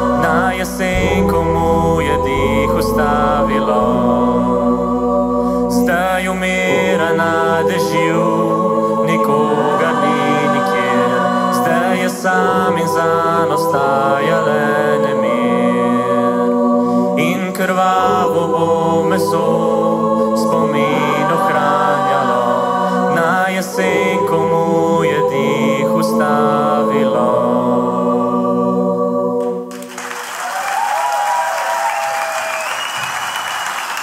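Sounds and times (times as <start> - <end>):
low bass note: 0.0 - 6.7
vocal group singing in harmony: 0.0 - 34.0.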